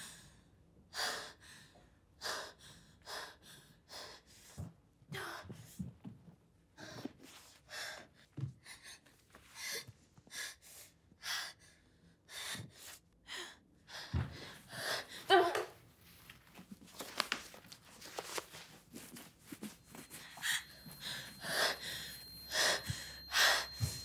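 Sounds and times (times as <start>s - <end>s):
woman gasping breaths: 20.0s - 24.0s.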